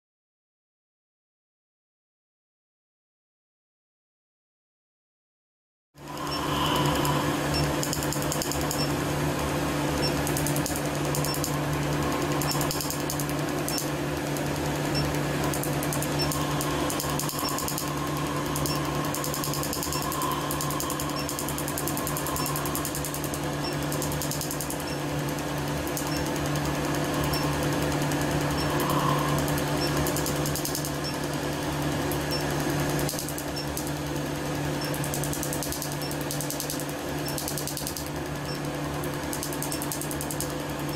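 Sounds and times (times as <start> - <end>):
laser unit hum: 6.0 - 40.9
laser snapping clicks: 6.2 - 8.9, 10.0 - 26.6, 28.5 - 31.2, 33.0 - 33.9, 34.8 - 38.6, 39.3 - 40.5.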